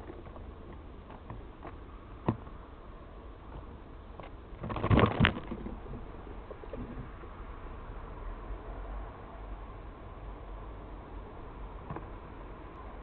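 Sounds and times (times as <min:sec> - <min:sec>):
squirrel scrambling on stump: 0:03.5 - 0:06.0
scratching and knocks: 0:03.6 - 0:06.0.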